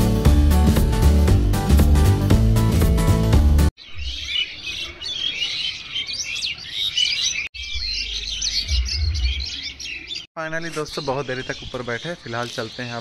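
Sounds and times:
flock of small birds chirping: 3.8s - 13.0s.

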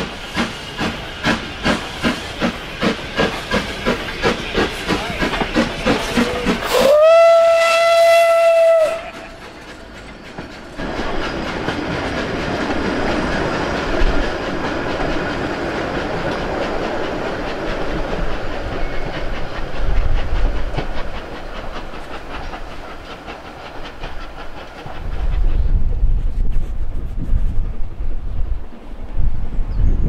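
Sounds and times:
wheels clacking on rail joints: 0.0s - 25.8s
steam locomotive hiss and exhaust: 0.0s - 29.7s
wind rumble on microphone: 24.8s - 30.0s.

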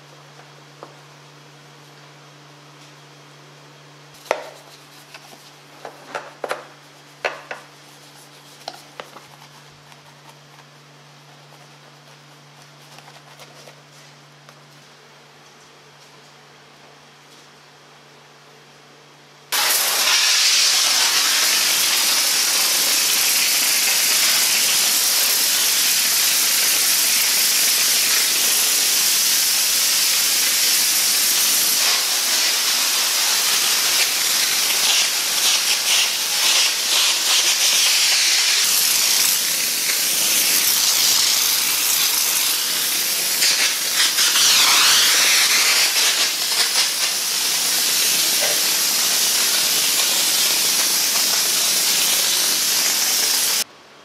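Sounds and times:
steam cleaner hissing: 19.5s - 53.7s.

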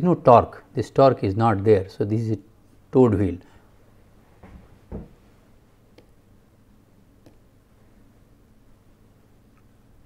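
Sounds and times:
soft short thuds: 4.4s - 5.2s.

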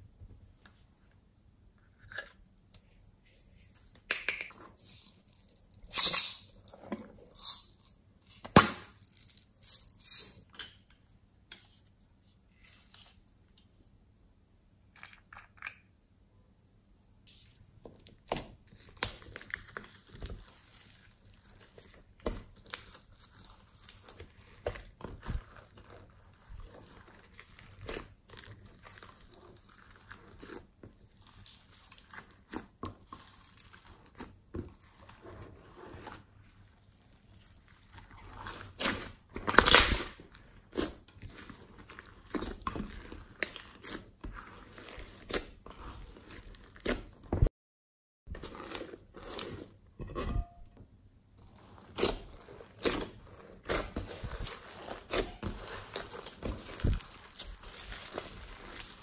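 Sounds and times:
slime squishing and crackling: 18.2s - 47.3s, 48.3s - 49.7s, 51.4s - 59.0s.

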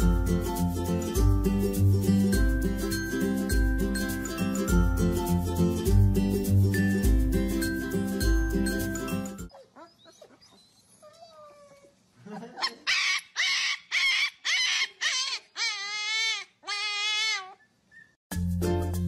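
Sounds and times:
puppy whining: 9.5s - 12.0s, 12.6s - 18.2s
puppy yapping: 12.6s - 18.1s.

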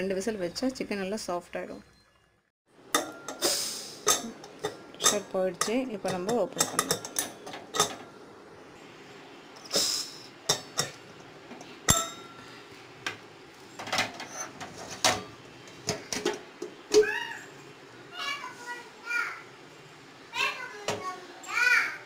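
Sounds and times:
brief steam hiss: 3.4s - 4.0s, 9.6s - 10.3s.

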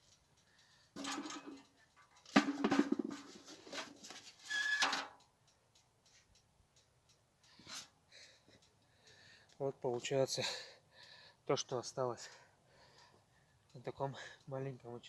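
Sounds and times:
potatoes knocking in metal bucket: 1.0s - 1.6s, 2.3s - 3.8s.

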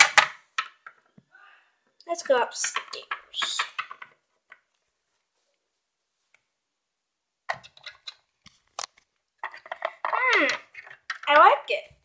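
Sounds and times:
plastic toy clicks and taps: 2.2s - 4.6s.

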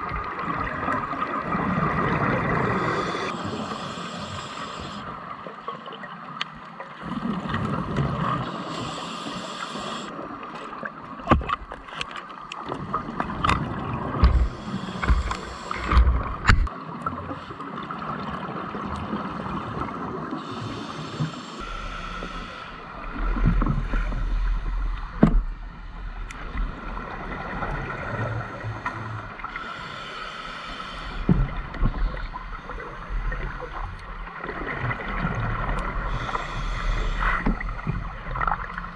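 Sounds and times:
underwater bubbles gurgling: 0.0s - 38.9s
sharp clicks and knocks: 13.4s - 16.7s.

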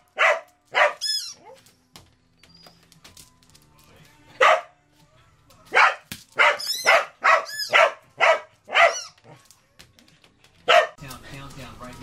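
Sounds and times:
dog barking: 0.0s - 1.6s, 4.4s - 4.8s, 5.7s - 9.4s, 10.6s - 11.0s.

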